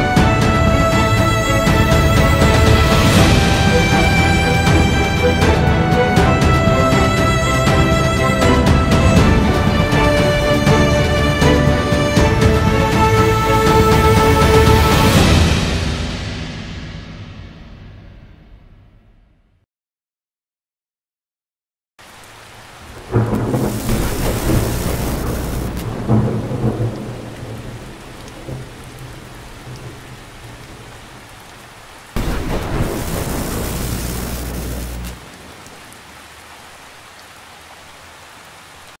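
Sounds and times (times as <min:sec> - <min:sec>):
thunderclap rumbling: 0:00.0 - 0:07.0, 0:22.8 - 0:36.2
steady rain hiss: 0:00.0 - 0:16.5, 0:22.0 - 0:39.0.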